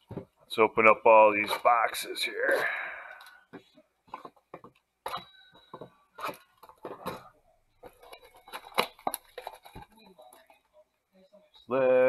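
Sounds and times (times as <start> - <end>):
cardboard boxes scraping and tapping: 3.5 - 10.5.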